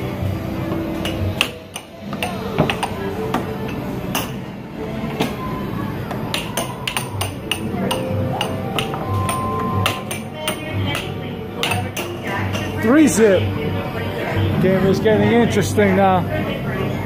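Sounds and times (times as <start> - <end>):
arcade music: 0.0 - 16.2
air hockey puck and mallets clacking: 0.7 - 4.4, 6.1 - 12.8.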